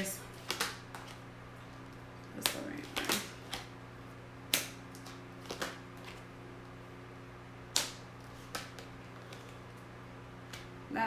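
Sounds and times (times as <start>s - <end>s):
faint hum: 0.0s - 11.0s
cards snapping and tapping: 0.4s - 1.2s, 2.4s - 3.7s, 4.5s - 6.2s, 7.7s - 9.6s.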